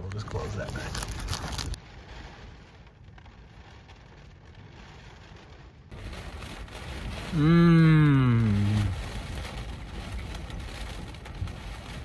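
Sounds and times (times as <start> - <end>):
heavy rain and wind on car: 0.0 - 12.0.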